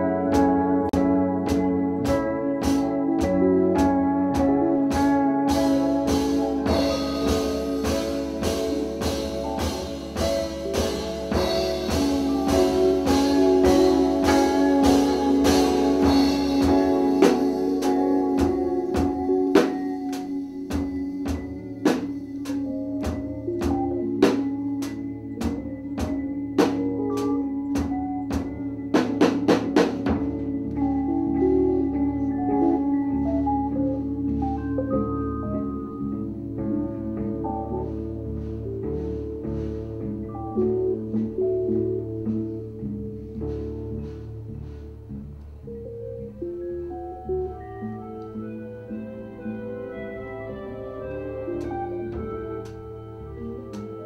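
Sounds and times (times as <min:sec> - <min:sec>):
cymbals: 0:00.0 - 0:35.0
held keyboard tones: 0:00.0 - 0:42.9
bass tones: 0:00.0 - 0:54.0
drum kit hits: 0:00.3 - 0:30.8.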